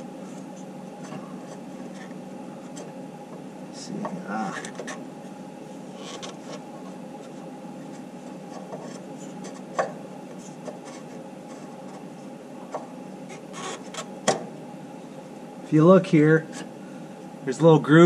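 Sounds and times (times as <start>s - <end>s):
steady low hum: 0.0s - 18.0s
filter rubbing and scraping: 5.8s - 9.8s, 13.3s - 14.1s.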